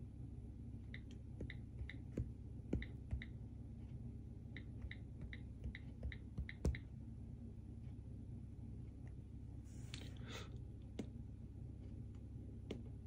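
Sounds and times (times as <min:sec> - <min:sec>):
on-screen keyboard clicks: 0:04.6 - 0:06.9.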